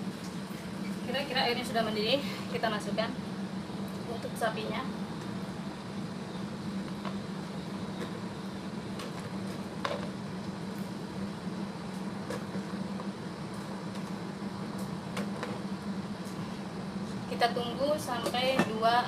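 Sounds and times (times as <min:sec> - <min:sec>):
steady low hum: 0:00.0 - 0:19.0
water boiling in a pot: 0:00.0 - 0:19.0.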